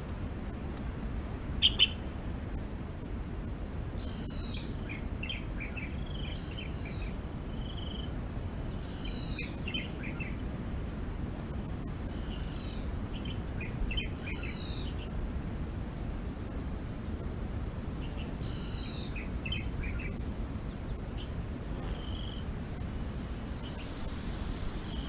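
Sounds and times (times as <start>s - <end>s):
insects chorus: 0.0s - 25.0s
bird calling: 1.6s - 2.0s, 4.0s - 7.1s.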